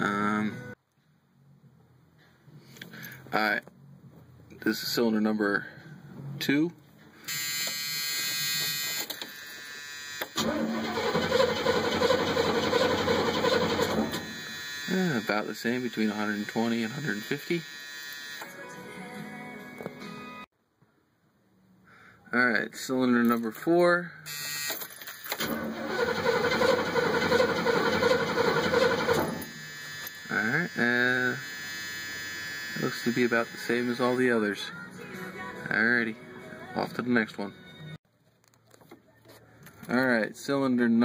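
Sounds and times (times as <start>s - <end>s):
steady buzzing tone: 7.3s - 10.4s, 14.1s - 18.5s, 29.3s - 34.4s
engine cranked by starter: 10.4s - 14.2s, 25.3s - 29.5s.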